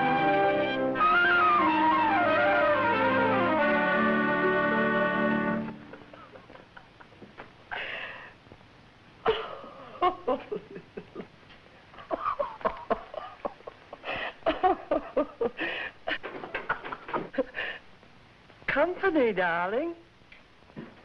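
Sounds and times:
woman chuckling: 5.8s - 8.2s, 9.2s - 11.4s, 12.0s - 17.8s.

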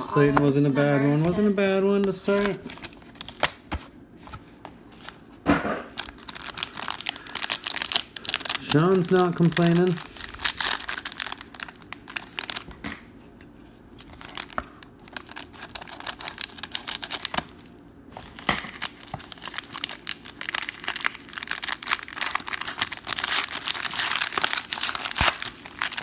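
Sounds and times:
foil wrapper crinkling and tearing: 2.0s - 3.7s, 5.9s - 12.8s, 14.0s - 26.0s.

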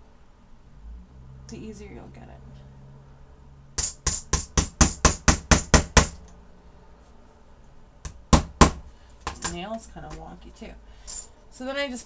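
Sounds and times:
hammer tapping nail into metal cap: 3.8s - 6.2s.

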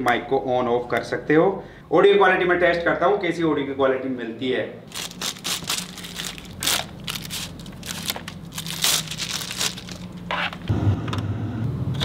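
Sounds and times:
low steady hum: 4.7s - 12.0s
plastic wrap crinkling: 4.9s - 10.7s.

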